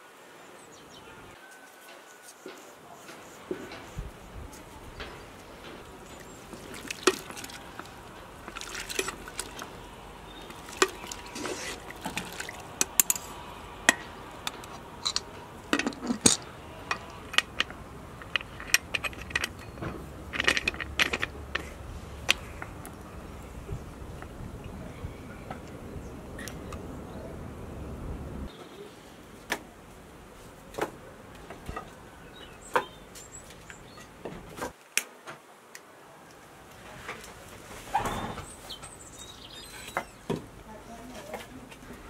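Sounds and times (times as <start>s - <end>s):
liquid pouring and splashing: 5.8s - 23.0s
spoons and pot clinking: 5.9s - 22.6s
screw clamp tightening: 13.9s - 22.4s.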